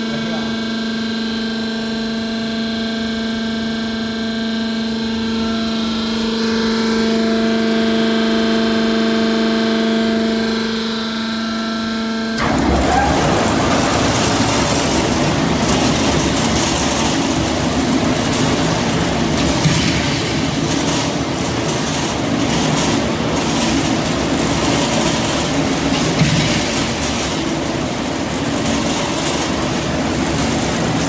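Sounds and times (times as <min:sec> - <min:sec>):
machine motor hum: 0:12.4 - 0:31.0
rattling rumble of spinning drum: 0:12.4 - 0:31.0.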